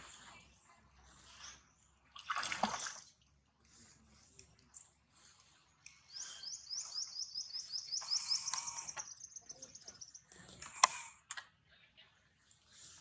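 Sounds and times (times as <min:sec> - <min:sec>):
bird chirping: 0:05.9 - 0:10.6.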